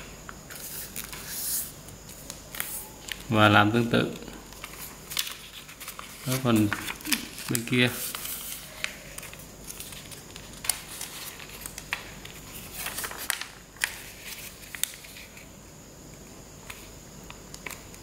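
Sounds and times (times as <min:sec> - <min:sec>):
paper rustling and creasing: 0:04.5 - 0:15.5.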